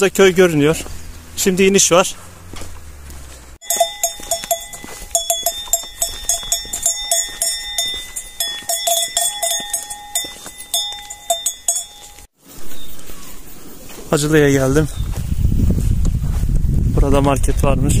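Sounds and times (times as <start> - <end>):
livestock bells clanking: 3.6 - 12.3.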